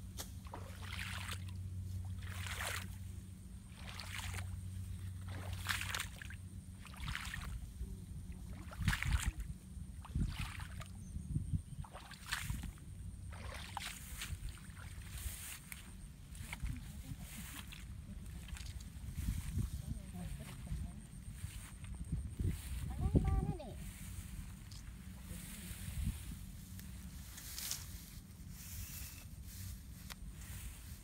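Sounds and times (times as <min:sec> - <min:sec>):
steady low hum: 0:00.0 - 0:31.0
water splashing rhythmically: 0:00.4 - 0:03.0, 0:03.6 - 0:07.6, 0:08.6 - 0:11.0, 0:11.8 - 0:15.8.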